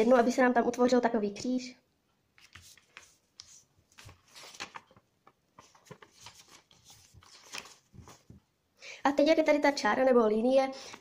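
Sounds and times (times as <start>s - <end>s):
paper rustling and crinkling: 2.4s - 8.4s.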